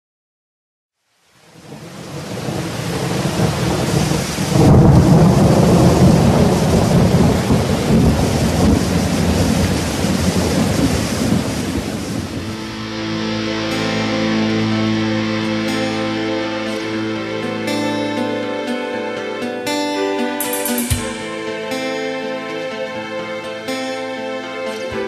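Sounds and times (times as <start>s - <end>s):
steady hissing rain: 1.0s - 14.8s
low rumbling thunder: 1.6s - 12.6s.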